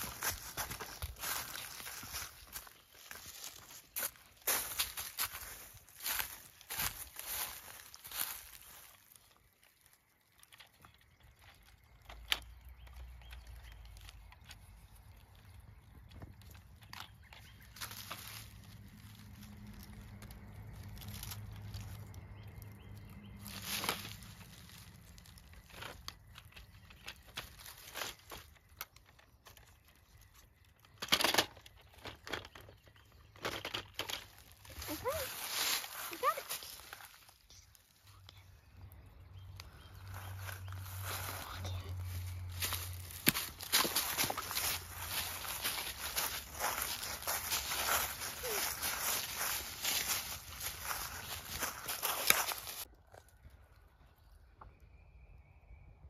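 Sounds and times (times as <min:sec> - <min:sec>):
dry leaves rustling and crackling: 0:00.0 - 0:10.2, 0:12.8 - 0:30.4, 0:33.2 - 0:38.4, 0:39.5 - 0:53.3.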